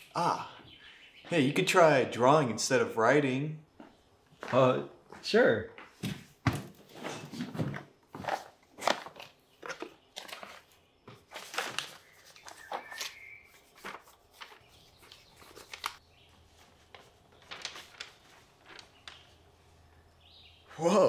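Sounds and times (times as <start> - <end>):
paper rustling: 7.0 - 20.7.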